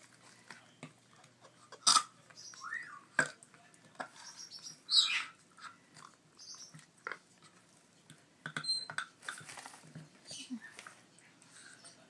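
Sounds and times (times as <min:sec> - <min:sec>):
parrot chicks raspy begging calls: 0:04.2 - 0:05.4.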